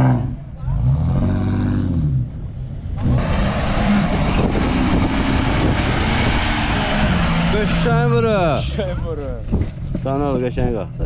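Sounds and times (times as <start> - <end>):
off-road engines revving: 0.0 - 11.0
rushing noise: 3.0 - 8.7.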